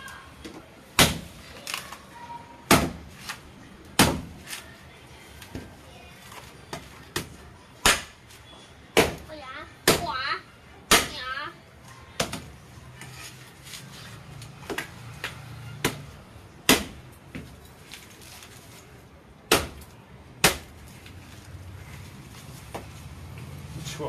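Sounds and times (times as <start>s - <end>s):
machete chopping coconut husk: 1.0s - 1.3s, 2.7s - 3.4s, 4.0s - 4.4s, 9.0s - 9.2s, 15.8s - 17.0s, 19.5s - 20.7s.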